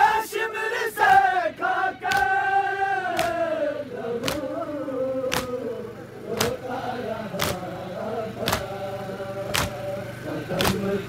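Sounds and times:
men chanting in unison: 0.0 - 11.0
hands beating on chests: 2.1 - 2.3, 3.1 - 3.4, 4.2 - 4.5, 5.3 - 5.6, 6.4 - 6.6, 7.4 - 7.6, 8.4 - 8.7, 9.5 - 9.8, 10.6 - 10.8.

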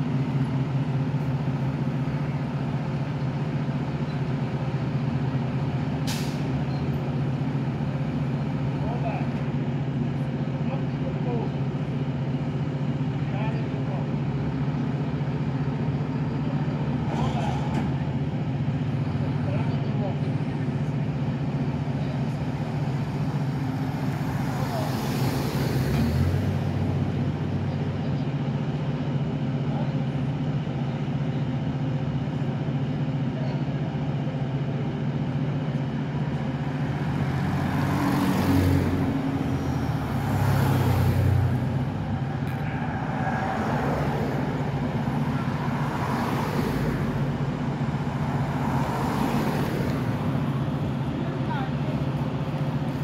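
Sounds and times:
engine idling drone: 0.0 - 53.0
cars driving past: 13.0 - 28.1, 35.6 - 53.0.

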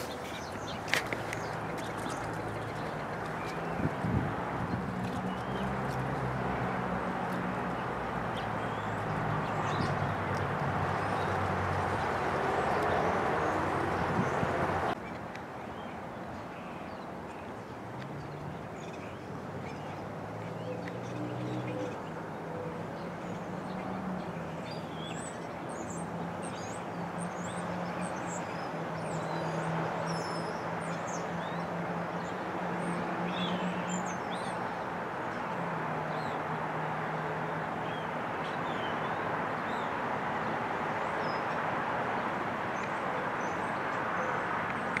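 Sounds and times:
wind noise: 0.0 - 5.9, 9.7 - 15.0
songbirds chirping: 0.0 - 45.0.

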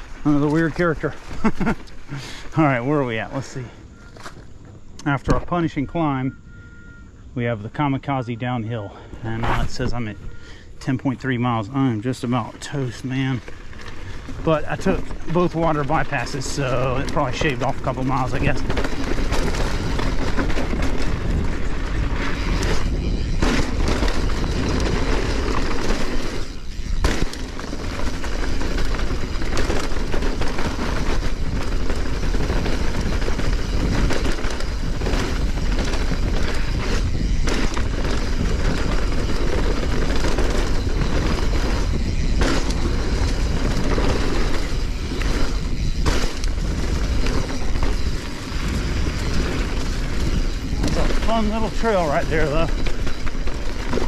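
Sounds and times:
tyre roar on dirt: 10.8 - 54.0
bike knocks and rattles: 13.0 - 54.0
wind noise on microphone: 13.4 - 54.0.

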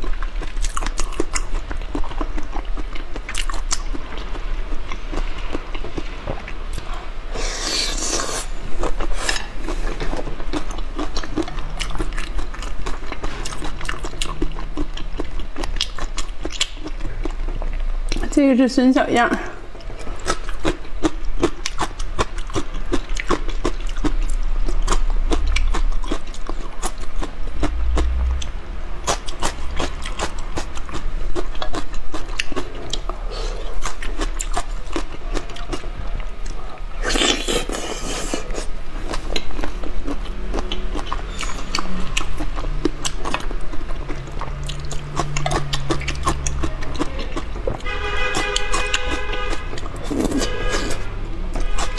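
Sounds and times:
close chewing and smacking: 0.0 - 18.3, 19.8 - 51.9
loud slurp: 7.3 - 9.9.

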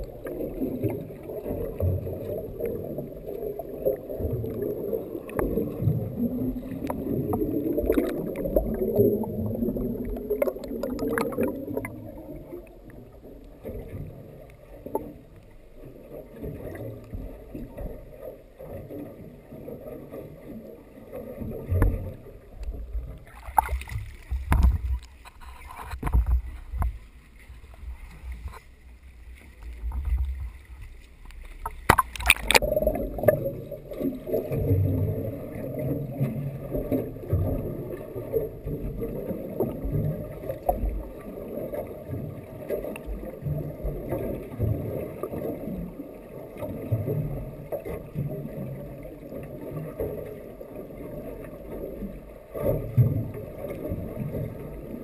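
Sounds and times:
splash: 0.0 - 12.4, 23.2 - 45.9
muffled underwater rush: 0.0 - 55.0
water knocking and sloshing: 22.8 - 28.7, 29.5 - 35.2.

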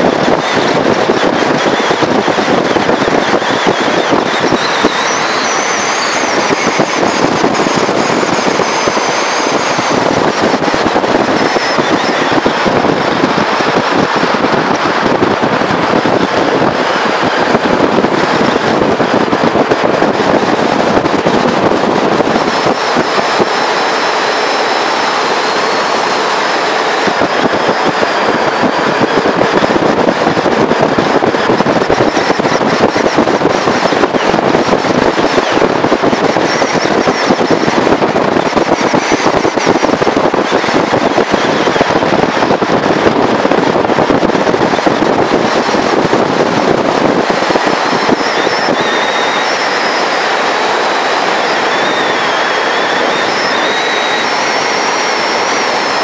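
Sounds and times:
wind buffeting microphone: 0.0 - 56.0
faint high whistle: 3.7 - 7.1.

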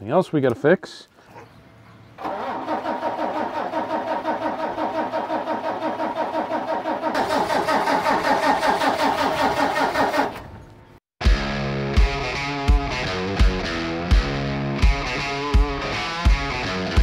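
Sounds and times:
tractor diesel engine cranking: 2.2 - 10.7.

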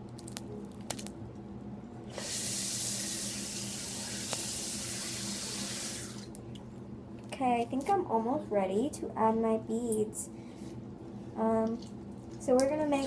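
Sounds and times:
water running into sink: 2.1 - 6.3.

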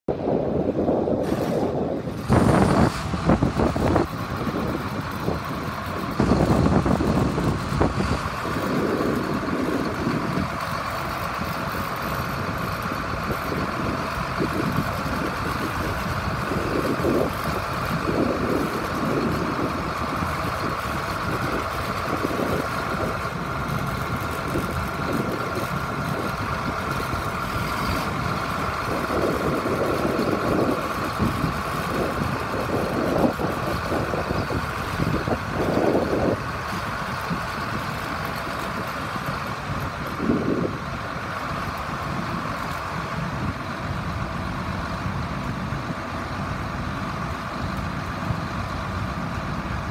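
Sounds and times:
tractor diesel engine running: 0.1 - 49.9.

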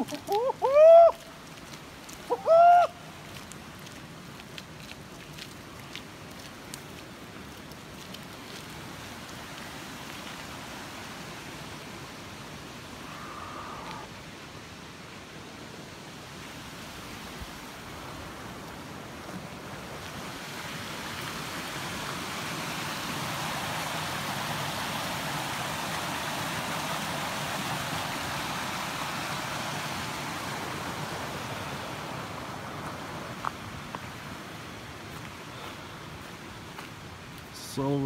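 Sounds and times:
creek water rushing over rocks: 0.0 - 38.0.

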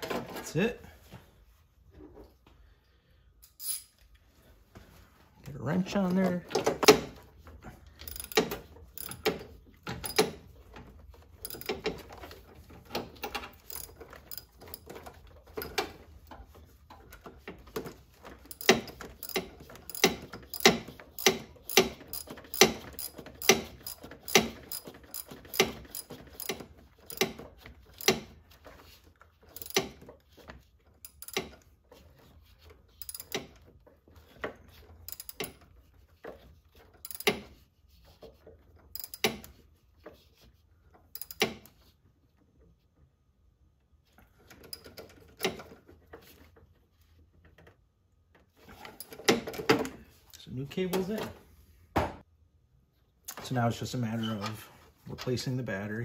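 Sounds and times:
ratchet wrench clicking: 3.4 - 3.9, 8.0 - 9.4, 11.4 - 11.8, 13.6 - 14.8, 18.5 - 27.4, 29.6 - 29.9, 33.0 - 33.5, 35.1 - 35.6, 37.0 - 37.4, 39.0 - 39.5, 41.2 - 41.5.

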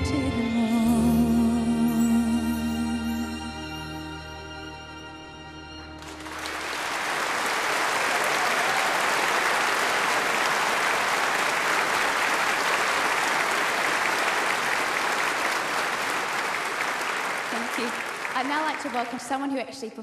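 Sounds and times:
audience applauding: 6.0 - 19.5.

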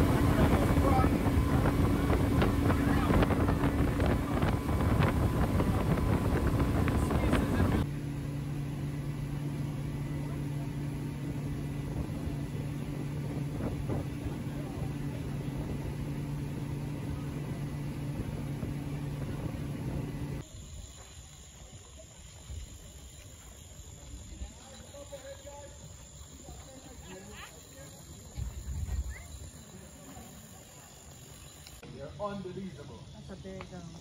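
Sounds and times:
wind buffeting microphone: 0.0 - 7.9, 11.2 - 20.4
speedboat engine: 0.0 - 34.0.

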